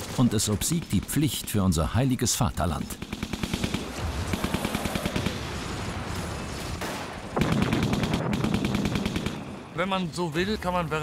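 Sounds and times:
machine-gun fire: 3.0 - 9.5.

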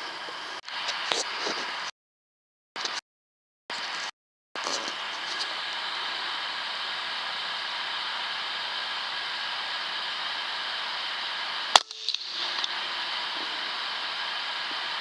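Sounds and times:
electronic hiss: 3.7 - 15.0.

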